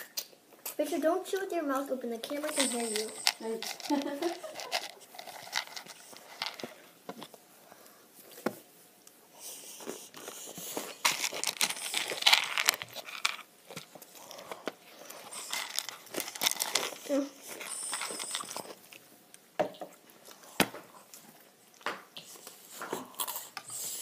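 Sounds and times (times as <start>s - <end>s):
noodles slurped and chewed: 9.5s - 19.1s.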